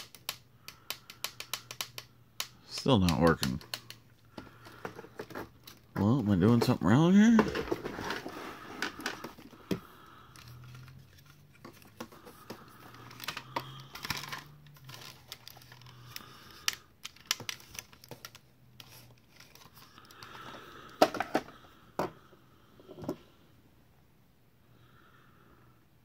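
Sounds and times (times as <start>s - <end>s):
plastic toy switches clicking: 0.0s - 4.0s
plastic toy rustling: 3.0s - 21.6s.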